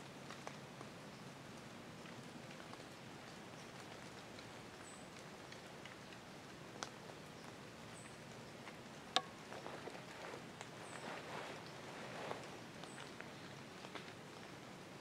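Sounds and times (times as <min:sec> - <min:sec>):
small drips and ticks: 0:00.0 - 0:15.0
light rustling: 0:09.2 - 0:14.1.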